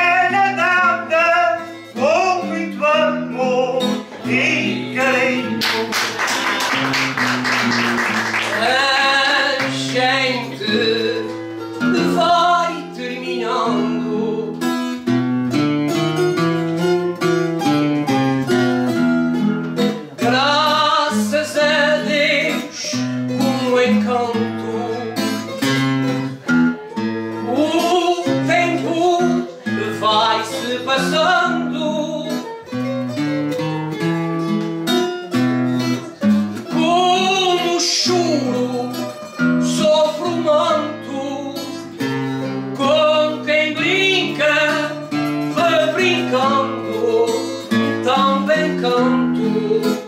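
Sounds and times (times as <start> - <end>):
plucked string instruments playing: 0.0 - 50.0.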